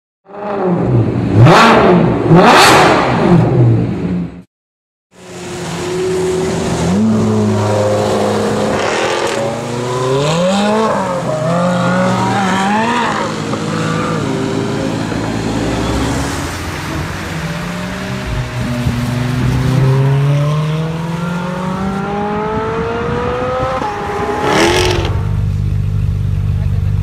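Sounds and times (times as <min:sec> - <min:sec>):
sports car engine accelerating: 0:05.7 - 0:27.0.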